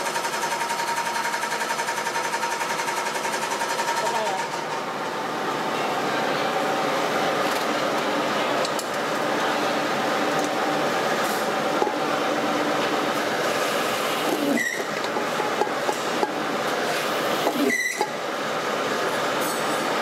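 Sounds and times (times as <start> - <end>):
brief squeak: 14.4 - 14.9, 17.6 - 18.1.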